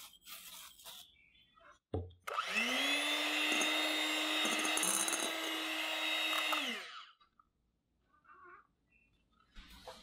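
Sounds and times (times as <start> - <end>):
electric hand mixer whirring: 2.3 - 7.2.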